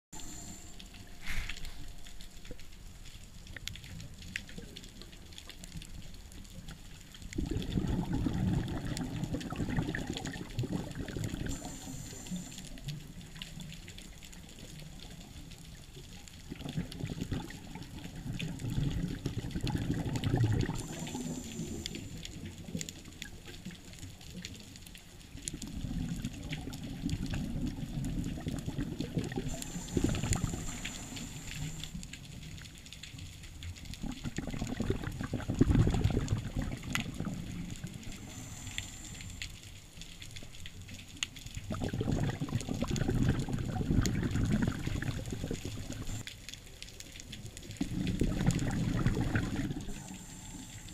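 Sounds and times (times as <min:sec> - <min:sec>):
regulator inhale hiss: 0:00.2 - 0:02.0, 0:11.4 - 0:12.9, 0:20.6 - 0:22.4, 0:29.5 - 0:32.1, 0:37.9 - 0:39.8, 0:49.7 - 0:50.9
exhaled bubbles rumbling: 0:00.2 - 0:50.9.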